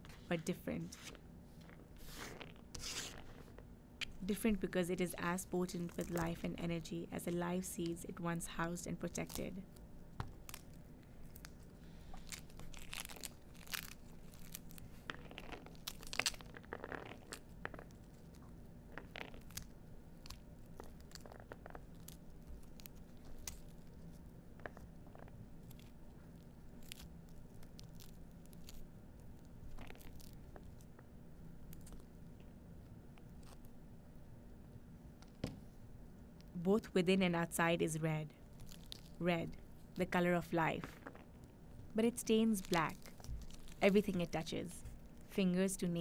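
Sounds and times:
pomegranate tearing and crackling: 2.1s - 6.9s, 8.7s - 33.8s, 38.4s - 45.3s
faint low hum: 2.6s - 46.0s.

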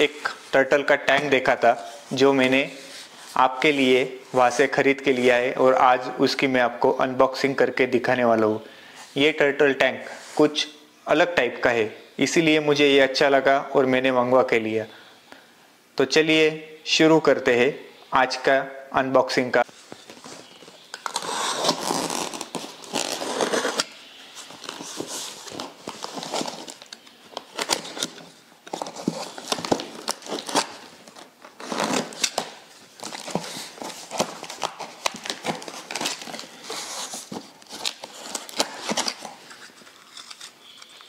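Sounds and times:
cardboard and tape crinkling: 19.8s - 41.0s
box cutter slicing packing tape: 31.6s - 33.4s.

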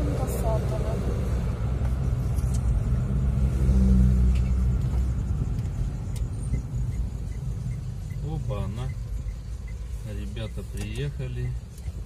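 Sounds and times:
car engine and road rumble: 0.0s - 12.0s
faint regular ticking: 4.4s - 12.0s.

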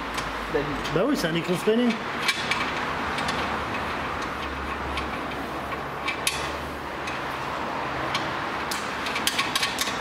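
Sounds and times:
tools and nuts clicking: 1.8s - 7.2s, 8.0s - 10.0s.

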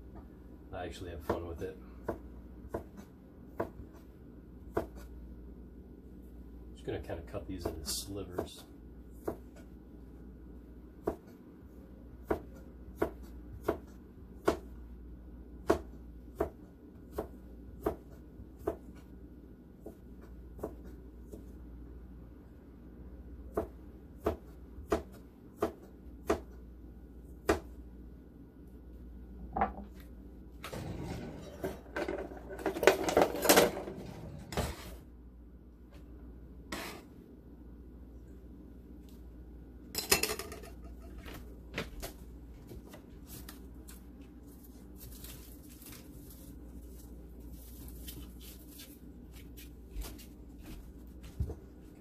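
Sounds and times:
knife chopping on plastic board: 1.2s - 4.0s, 4.7s - 5.1s, 9.2s - 9.7s, 11.0s - 11.4s, 12.2s - 14.7s, 15.6s - 19.1s, 23.5s - 26.6s
scraping and clatter on board: 30.6s - 35.0s.

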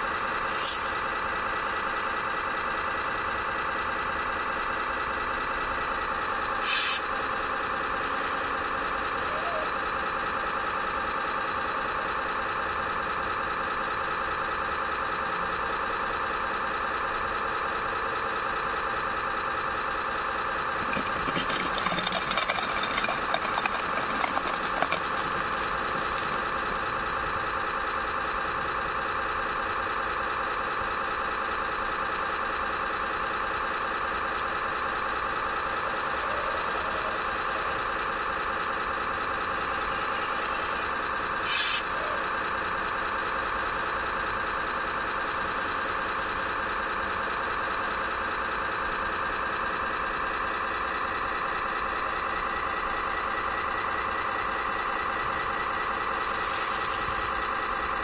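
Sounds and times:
model machinery mechanical whine: 18.9s - 27.4s, 51.7s - 58.0s
short clatter: 20.6s - 27.0s, 56.2s - 57.3s.

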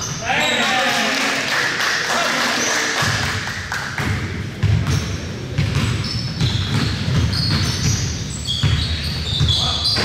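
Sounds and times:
basketball bouncing on court: 3.0s - 10.0s
shoe squeaks: 4.8s - 10.0s.

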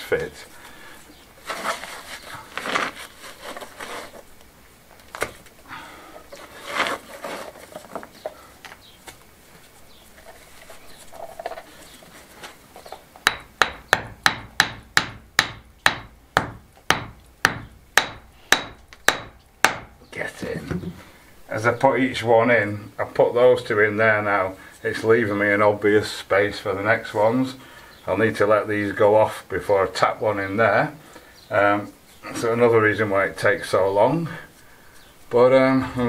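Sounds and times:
stone scraping in mortar: 6.3s - 8.0s
small hammer tapping stone: 13.2s - 19.9s.

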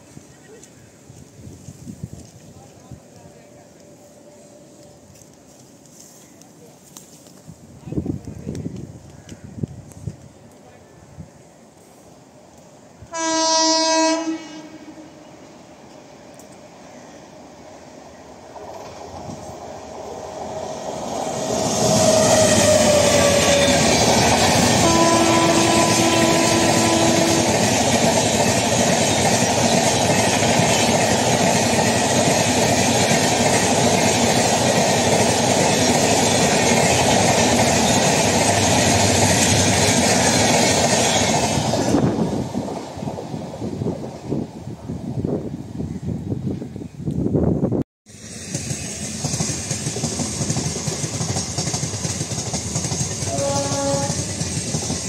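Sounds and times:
train rumble and wheel clatter: 0.0s - 55.0s
train horn: 13.0s - 15.6s, 21.8s - 24.0s, 24.7s - 27.8s, 53.2s - 54.5s.

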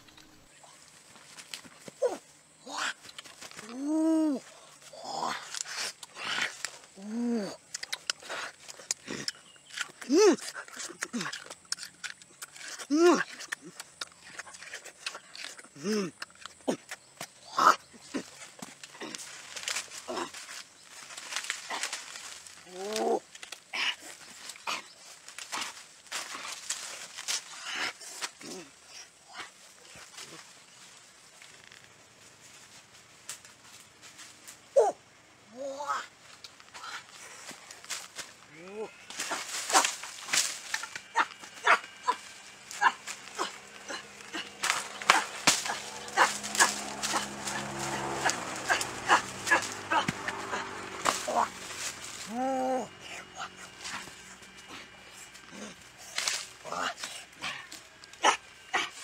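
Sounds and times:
low hum: 0.0s - 2.8s, 29.7s - 59.0s
leaves rustling: 0.0s - 11.6s, 17.0s - 59.0s
twigs snapping: 0.1s - 2.1s, 7.5s - 28.6s, 39.1s - 52.4s, 53.4s - 59.0s.

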